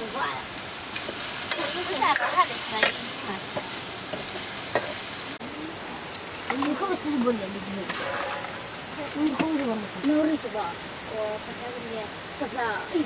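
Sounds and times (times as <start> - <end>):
meat sizzling in oil: 0.0 - 13.0
metal ladle scraping wok: 0.6 - 5.2, 7.8 - 8.9.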